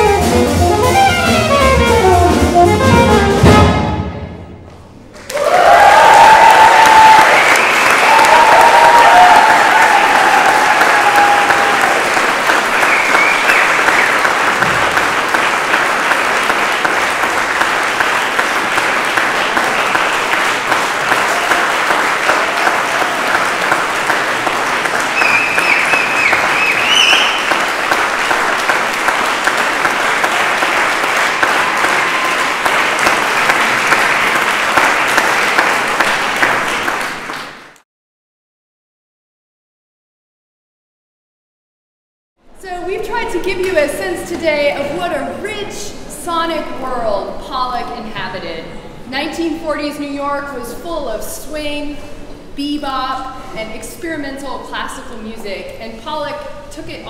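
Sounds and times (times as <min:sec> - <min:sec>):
audience applauding: 0:05.2 - 0:37.8
high whoops: 0:05.3 - 0:12.0.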